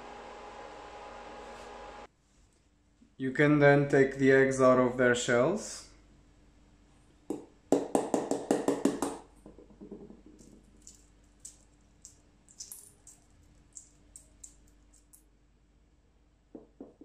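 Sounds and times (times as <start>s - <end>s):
eggshell cracking: 10.4s - 15.2s.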